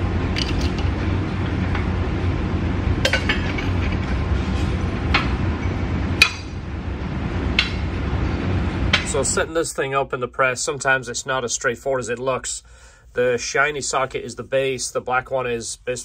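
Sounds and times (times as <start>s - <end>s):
steady low hum: 0.0s - 16.0s
steel sockets clinking on metal plates: 0.4s - 0.9s.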